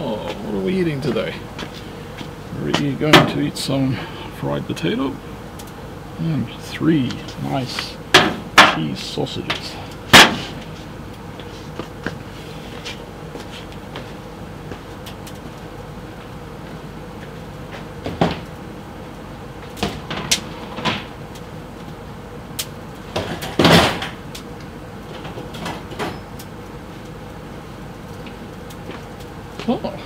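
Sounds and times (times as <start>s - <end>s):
steady low hum: 0.0s - 30.0s.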